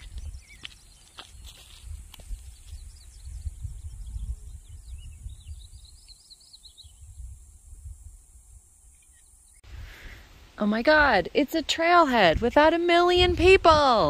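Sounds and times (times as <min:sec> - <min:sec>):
small birds chirping: 0:00.0 - 0:07.6, 0:08.8 - 0:09.6
wind gusting on microphone: 0:00.0 - 0:09.0, 0:09.6 - 0:14.0.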